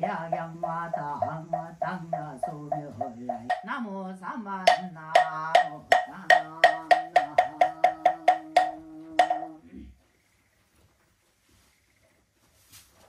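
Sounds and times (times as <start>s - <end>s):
man chanting on a steady note: 0.0s - 9.6s
wooden fish knocks: 1.2s - 3.7s, 4.7s - 9.6s.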